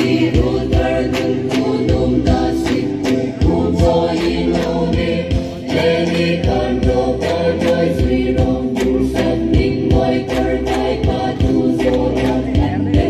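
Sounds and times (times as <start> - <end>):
chorus of voices chanting: 0.0 - 13.0
steady percussive beat: 0.0 - 13.0.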